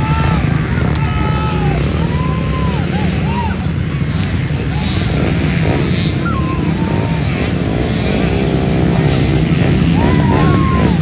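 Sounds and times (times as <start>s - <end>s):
crowd voices and calls: 0.0s - 11.0s
dirt bike engines rumbling: 0.0s - 11.0s.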